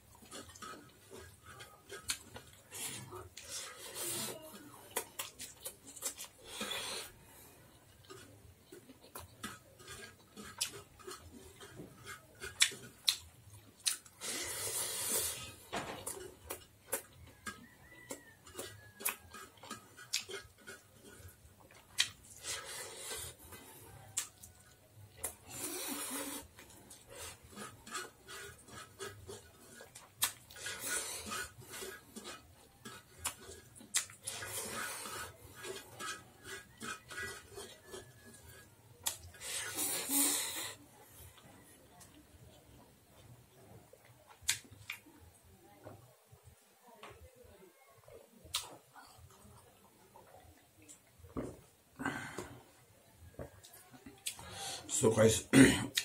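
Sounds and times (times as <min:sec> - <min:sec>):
wet chewing and lip-smacking: 0:00.0 - 0:45.4, 0:48.0 - 0:51.3, 0:53.1 - 0:54.7.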